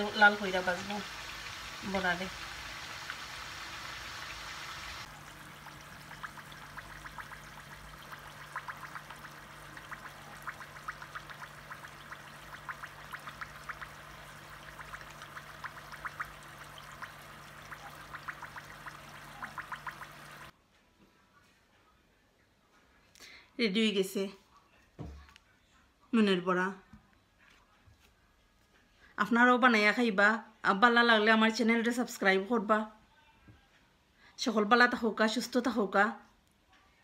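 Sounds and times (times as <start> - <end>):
fritters sizzling in hot oil: 0.0 - 20.5
low steady hum: 0.0 - 20.5.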